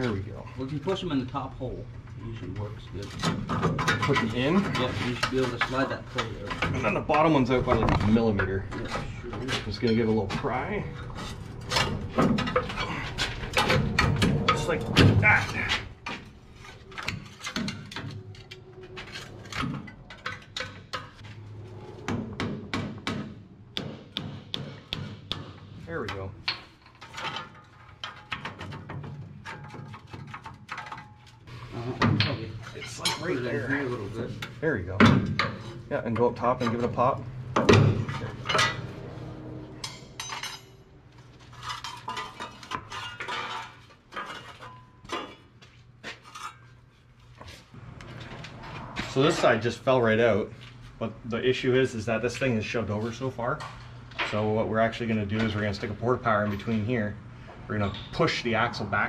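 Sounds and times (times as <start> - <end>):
low steady hum: 0.0 - 59.0
metal parts clanking and clinking: 3.0 - 21.3, 26.1 - 39.0, 39.7 - 45.5.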